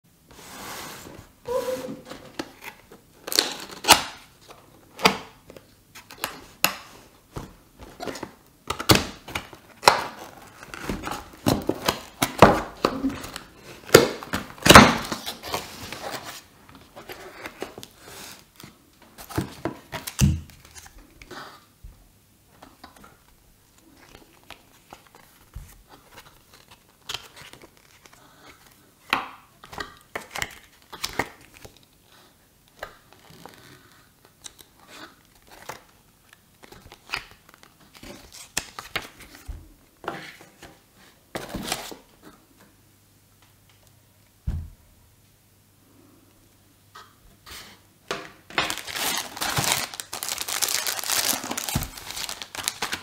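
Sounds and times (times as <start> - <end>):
bubble wrap crinkling: 48.5 - 53.0
packaging rustling and crinkling: 48.5 - 53.0.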